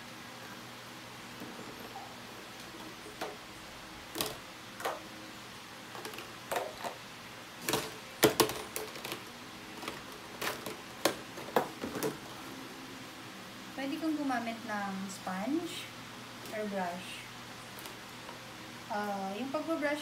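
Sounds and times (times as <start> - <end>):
hard plastic clicking and clattering: 7.6 - 12.2.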